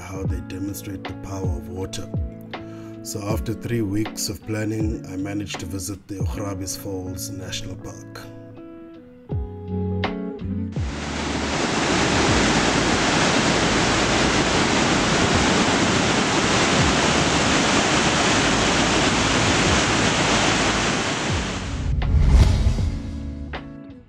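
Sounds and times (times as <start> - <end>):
guitar music: 0.3 - 13.0, 16.8 - 21.8, 23.0 - 24.0
large waterfall rushing: 10.8 - 21.8.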